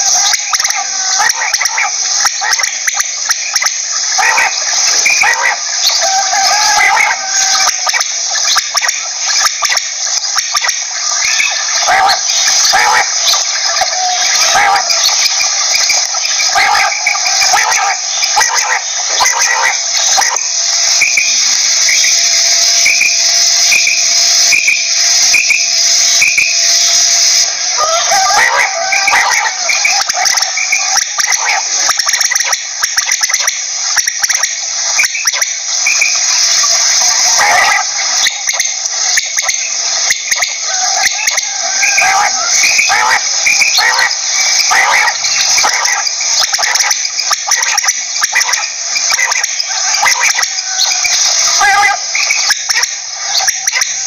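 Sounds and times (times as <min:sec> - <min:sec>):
high insect-like hiss: 0:00.0 - 0:54.0
quail calling: 0:00.0 - 0:54.0.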